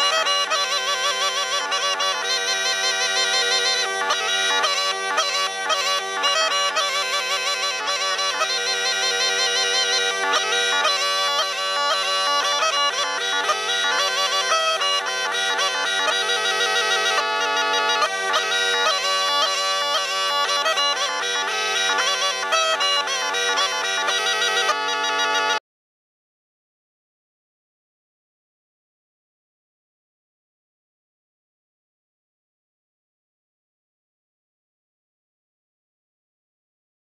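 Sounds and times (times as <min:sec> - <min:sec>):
bagpipe folk music: 0:00.0 - 0:25.6.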